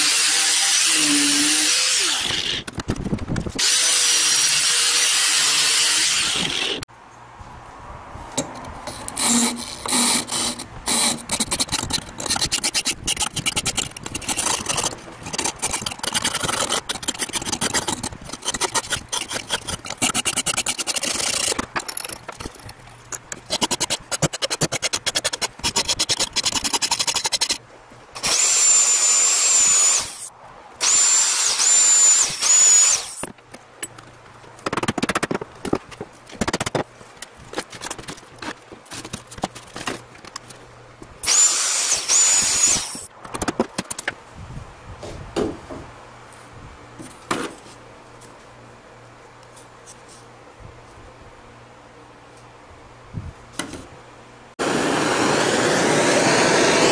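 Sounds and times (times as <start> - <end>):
hand tool scraping wood: 8.9 - 27.6
gas torch hissing: 54.6 - 56.9.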